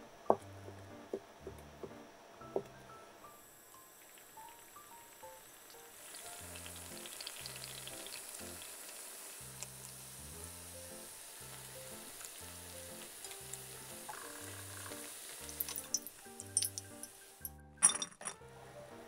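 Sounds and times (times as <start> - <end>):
donuts sizzling in hot oil: 3.4 - 17.5
skimmer and chopsticks clinking: 15.5 - 18.4.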